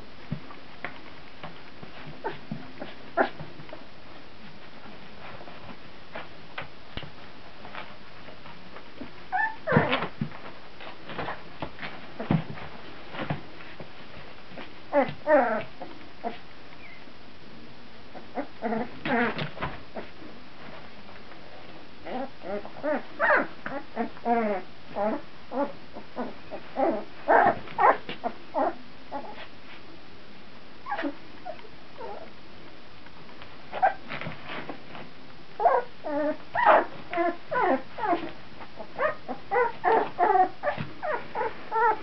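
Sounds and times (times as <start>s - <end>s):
puppies whimpering and squeaking: 9.3s - 10.1s, 14.9s - 17.1s, 22.1s - 29.5s, 30.8s - 32.3s, 35.6s - 42.0s.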